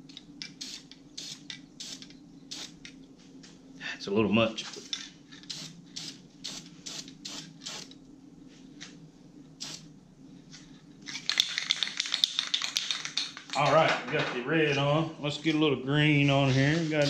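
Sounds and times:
spray-paint can hissing: 0.6 - 2.8, 5.5 - 7.9, 9.6 - 9.8.

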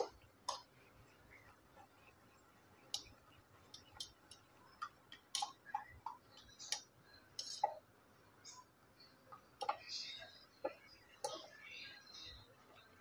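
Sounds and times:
spoon tapping against metal pot: 0.0 - 0.8, 2.9 - 7.8.

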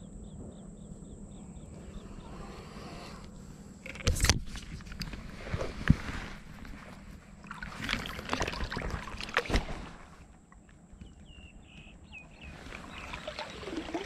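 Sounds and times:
water sloshing and splashing: 3.8 - 11.0, 12.1 - 14.0.

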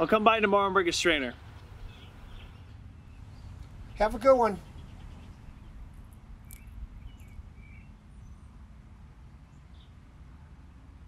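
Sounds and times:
low steady rumble: 0.0 - 11.0
faint bird chirps: 1.5 - 8.6.

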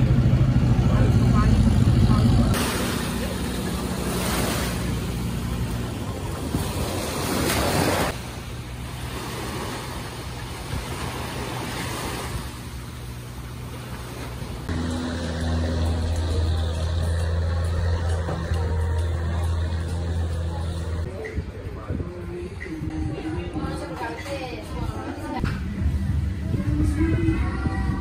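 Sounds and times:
low hum: 0.0 - 24.0
surf washing onto beach: 2.5 - 12.8
wind on microphone: 24.7 - 28.0.

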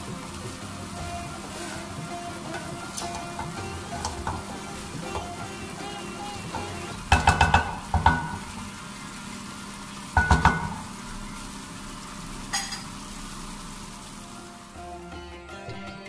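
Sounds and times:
wooden spatula knocking pan: 0.0 - 8.7, 10.2 - 10.9
faint sizzle: 0.0 - 15.7.

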